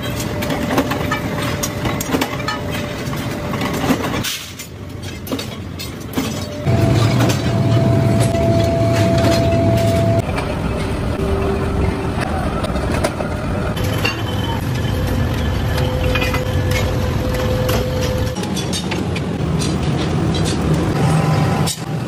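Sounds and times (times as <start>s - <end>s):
factory machinery rumble: 0.0s - 22.0s
steady high tone: 6.6s - 12.4s
metallic clanks and knocks: 17.6s - 20.9s.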